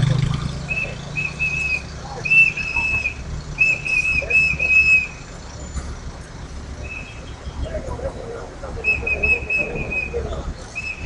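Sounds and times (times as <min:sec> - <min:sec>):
hand whistle blasts: 0:00.7 - 0:05.2, 0:08.8 - 0:10.2, 0:10.8 - 0:11.0.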